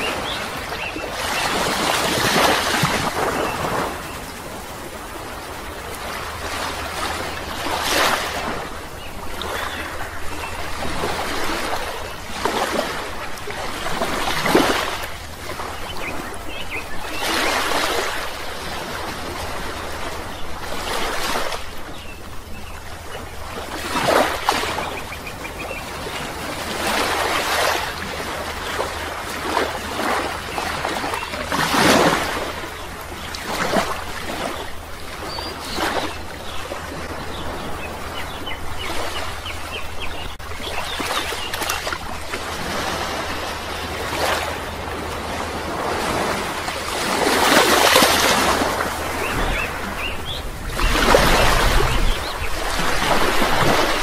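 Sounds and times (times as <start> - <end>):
rushing water: 0.0 - 54.0.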